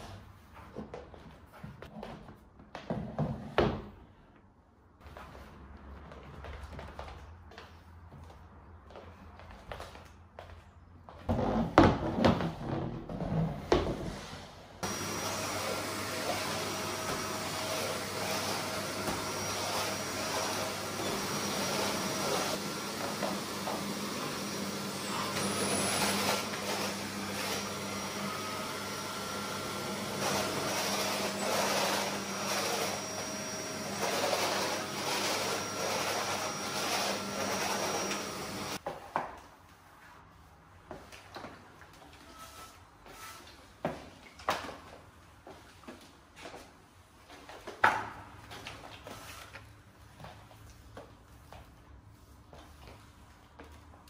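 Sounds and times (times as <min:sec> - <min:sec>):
vacuum cleaner running: 0:13.8 - 0:38.8.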